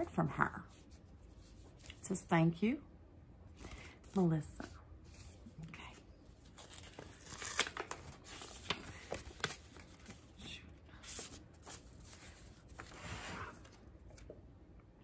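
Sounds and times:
paper rustling: 0:06.4 - 0:14.3.

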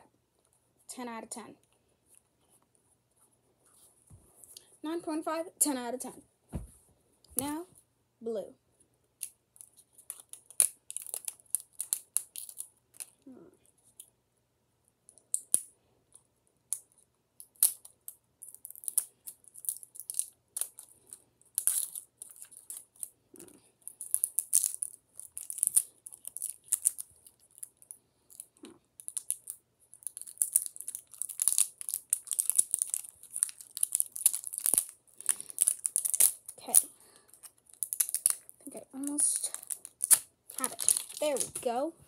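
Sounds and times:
plastic wrapper crinkling: 0:09.2 - 0:13.2, 0:17.4 - 0:23.1, 0:23.8 - 0:41.9.

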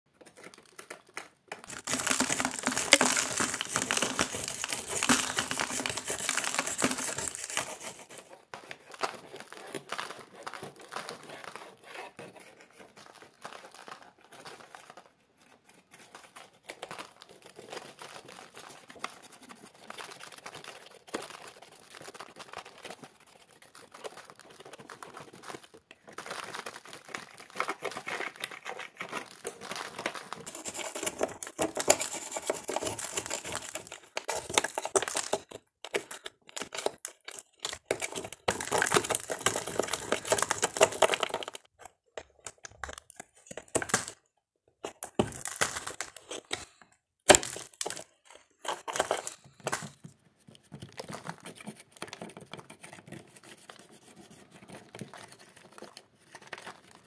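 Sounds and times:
mud flakes crackling and crunching: 0:01.6 - 0:08.2, 0:29.7 - 0:41.7, 0:45.1 - 0:48.1.

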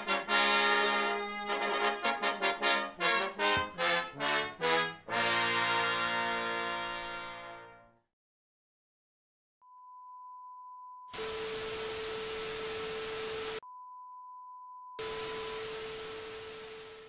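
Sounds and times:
tv static hiss: 0:11.2 - 0:13.6, 0:15.0 - 0:17.0.

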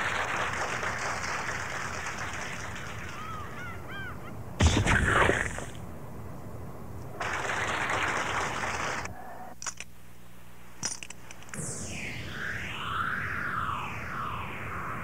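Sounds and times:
rush of noise: 0:11.6 - 0:15.0
swooping synthesizer line: 0:11.6 - 0:15.0.

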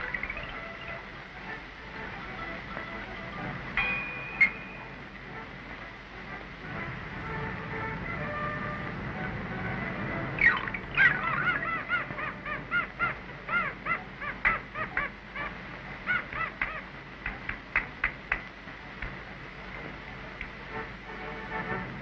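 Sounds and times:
short bird-like calls: 0:10.4 - 0:16.9
sharp clicks: 0:16.3 - 0:19.2.

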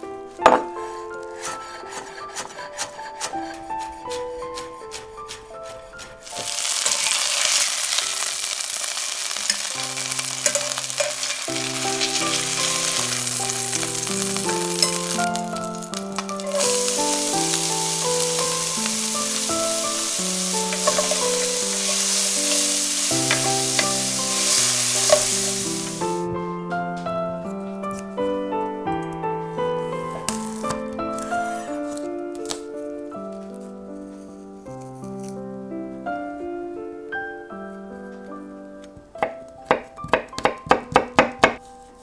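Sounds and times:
spatula stirring pan: 0:00.8 - 0:26.2
chicken sizzling in hot oil: 0:06.2 - 0:26.2.

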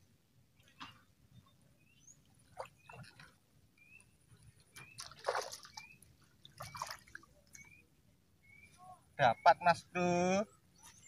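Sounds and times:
bird chirping: 0:03.8 - 0:11.0
fish splashing: 0:04.8 - 0:07.3.

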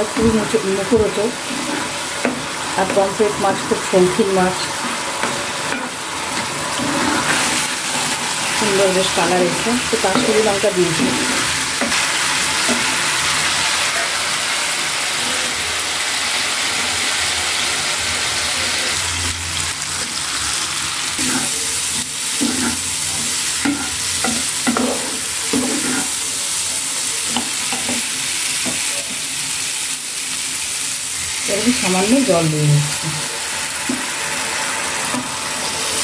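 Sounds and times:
paste sizzling in oil: 0:00.0 - 0:36.0
spatula scraping a pan: 0:00.9 - 0:03.1, 0:04.7 - 0:13.4, 0:21.2 - 0:26.3.

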